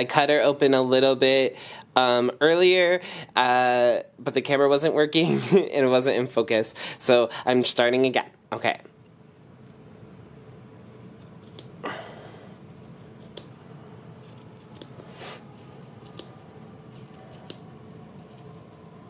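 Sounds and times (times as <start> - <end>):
scissors snipping fabric: 15.9 - 16.4.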